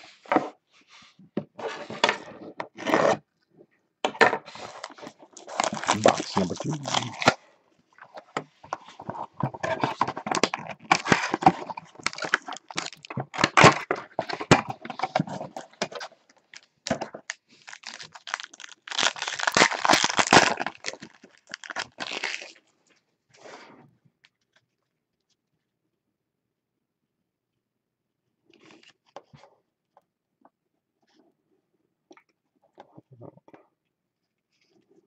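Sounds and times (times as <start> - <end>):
plastic wrapper crinkling: 4.8 - 7.3, 10.3 - 13.4, 16.5 - 22.6.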